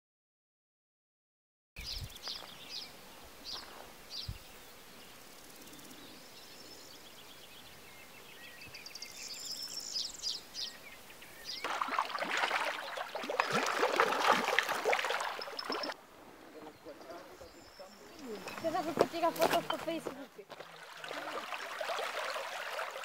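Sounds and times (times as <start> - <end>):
small birds chirping: 1.8 - 21.5
stream babbling over stones: 11.6 - 16.0, 18.2 - 23.0.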